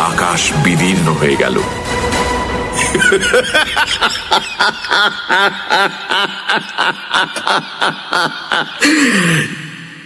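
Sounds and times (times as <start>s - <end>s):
man laughing loudly: 2.8s - 9.4s.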